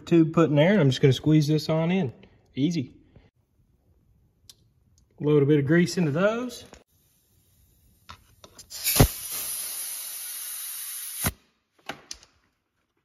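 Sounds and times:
air chuck pop: 0:08.6 - 0:09.8
compressed air hissing: 0:08.6 - 0:11.4.

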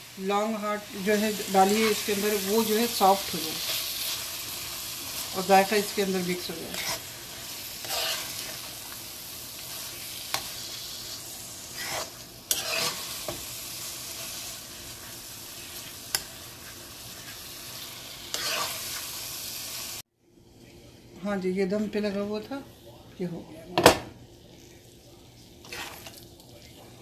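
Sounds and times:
mash sizzling in a pan: 0:00.0 - 0:20.1, 0:23.8 - 0:27.0
spatula scraping a pan: 0:01.5 - 0:19.2, 0:25.6 - 0:26.2.

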